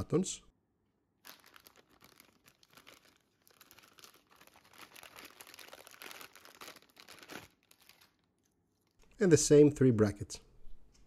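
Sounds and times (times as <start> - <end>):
plastic bag crinkling: 1.2 - 9.0.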